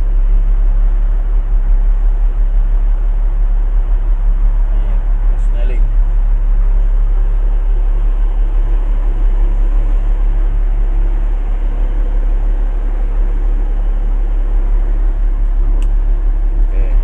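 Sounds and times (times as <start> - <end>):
truck diesel engine idling: 0.0 - 17.0.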